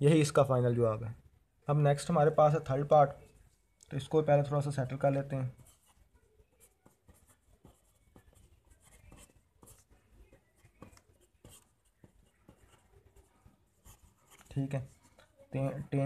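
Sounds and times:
pen scratching on paper: 0:04.9 - 0:15.1.

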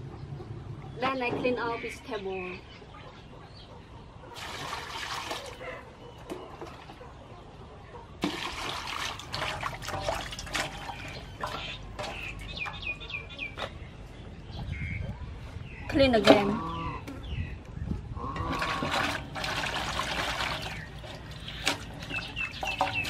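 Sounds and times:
water poured into metal basin: 0:04.4 - 0:05.6, 0:08.2 - 0:12.3, 0:18.5 - 0:23.0
vegetables splashing and clattering: 0:08.2 - 0:12.6, 0:18.6 - 0:23.0.

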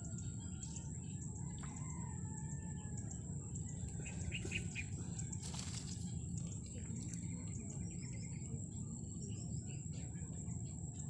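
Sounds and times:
low rumbling ambient noise: 0:00.0 - 0:11.0
birds whistling and chirping: 0:03.9 - 0:05.3.

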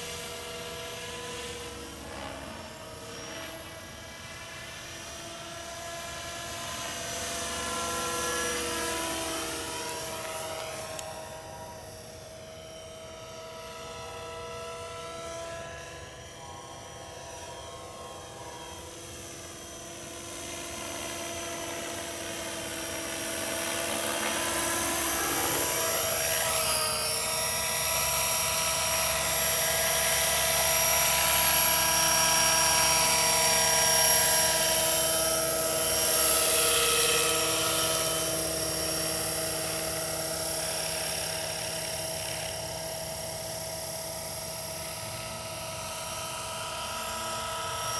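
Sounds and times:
model helicopter whine: 0:00.0 - 0:47.9.

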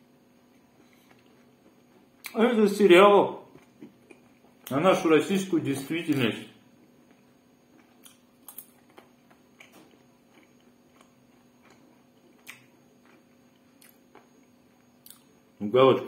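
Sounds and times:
low steady hum: 0:00.0 - 0:16.0
chewing and wet mouth clicks: 0:00.5 - 0:02.4, 0:07.1 - 0:15.3.

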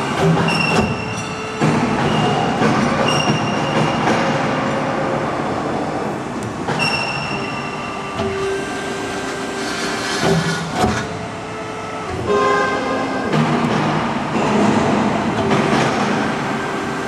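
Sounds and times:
high metallic squeals: 0:00.0 - 0:05.2, 0:06.7 - 0:13.4
industrial machinery din: 0:00.0 - 0:17.0.

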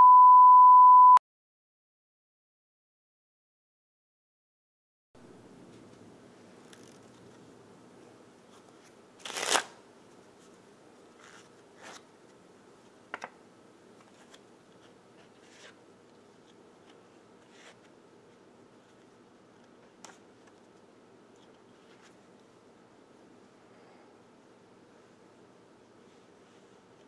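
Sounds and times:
playing cards shuffling: 0:06.6 - 0:07.2, 0:08.6 - 0:09.8.

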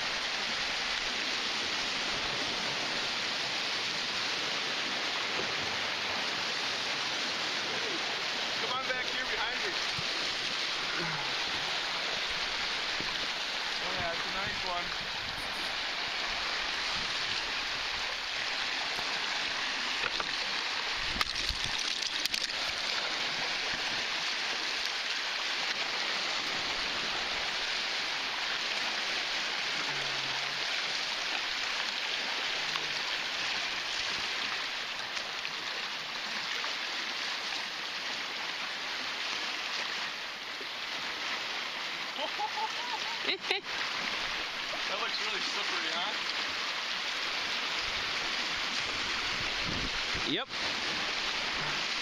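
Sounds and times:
waves splashing against rocks: 0:03.7 - 0:31.0.

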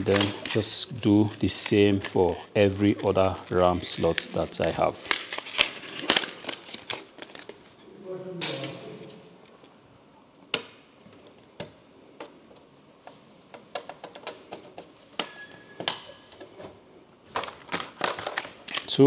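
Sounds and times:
plastic packaging handled: 0:00.0 - 0:07.8, 0:13.7 - 0:19.0.

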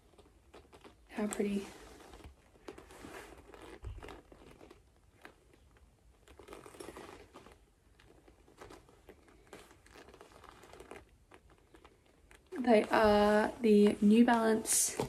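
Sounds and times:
sneaker handling rustles: 0:01.8 - 0:05.6.

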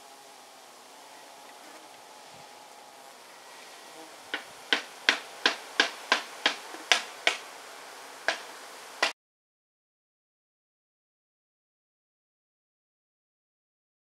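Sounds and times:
faint hiss: 0:00.0 - 0:09.2.

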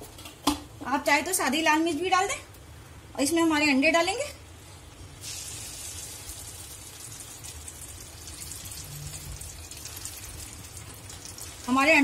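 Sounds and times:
hot oil sizzling and crackling: 0:04.9 - 0:12.0.

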